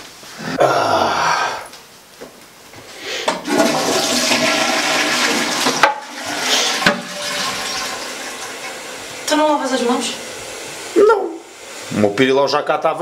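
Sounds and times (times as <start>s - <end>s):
toilet flushing: 3.3s - 13.0s.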